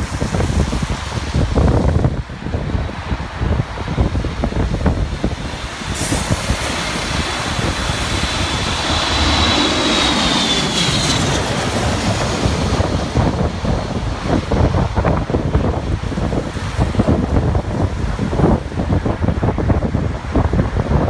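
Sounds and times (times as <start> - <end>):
wind buffeting microphone: 0.0 - 21.0
jet airliner passing overhead: 4.4 - 17.0.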